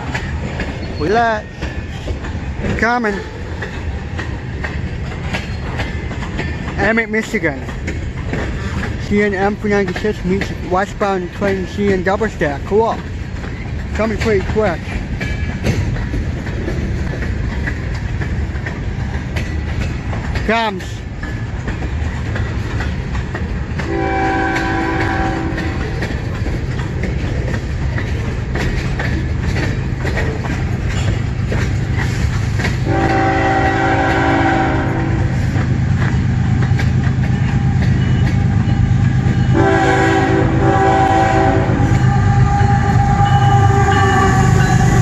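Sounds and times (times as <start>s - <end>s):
freight train cars rolling: 0.0s - 45.0s
locomotive air horn blasts: 23.9s - 25.8s, 32.8s - 35.3s, 39.5s - 45.0s.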